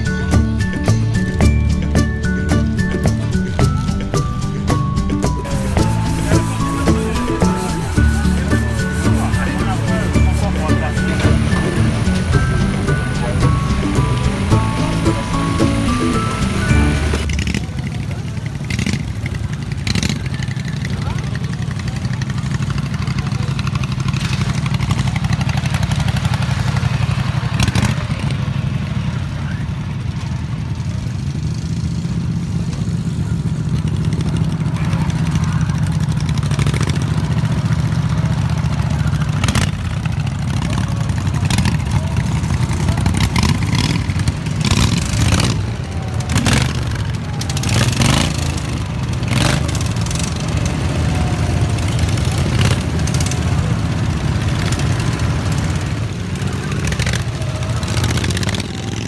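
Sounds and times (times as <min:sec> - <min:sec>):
small engines running: 0:00.0 - 0:59.0.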